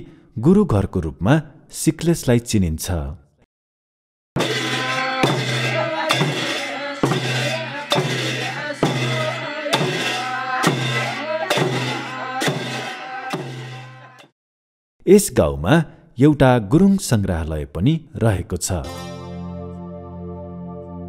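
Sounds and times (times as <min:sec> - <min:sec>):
drum beat: 0:04.4 - 0:14.3
hand cymbals crashing: 0:04.4 - 0:14.3.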